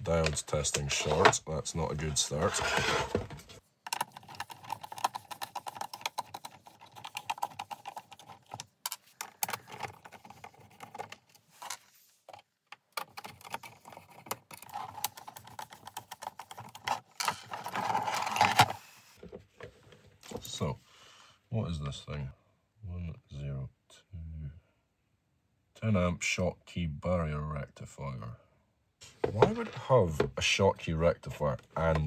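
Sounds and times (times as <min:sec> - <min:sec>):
plastic case clattering: 0:16.0 - 0:19.6, 0:29.2 - 0:30.4.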